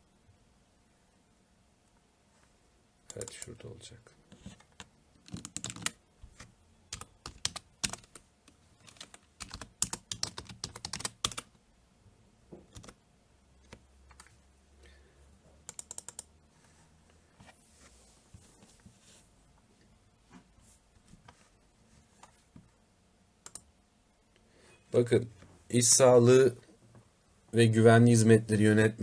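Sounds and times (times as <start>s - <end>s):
typing on a keyboard: 4.6s - 11.5s, 12.7s - 13.0s, 13.6s - 14.4s, 15.7s - 16.3s.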